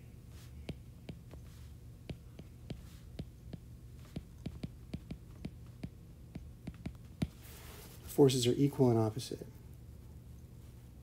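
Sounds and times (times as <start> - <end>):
low steady hum: 0.0 - 11.0
stylus tapping on glass screen: 2.1 - 7.4.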